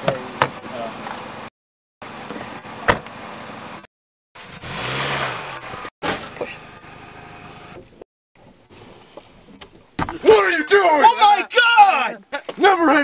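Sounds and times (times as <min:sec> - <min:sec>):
car door shutting: 0:02.8 - 0:03.2
insects chirring: 0:05.7 - 0:13.0.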